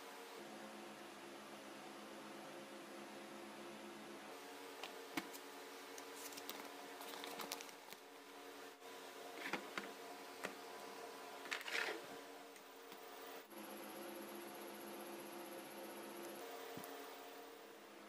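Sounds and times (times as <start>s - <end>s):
steady low hum: 0.0s - 18.0s
paper crinkling: 6.0s - 8.0s.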